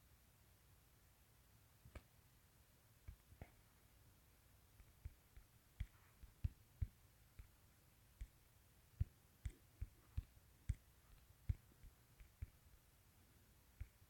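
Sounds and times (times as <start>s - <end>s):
fingertip taps on touchscreen: 9.0s - 12.7s.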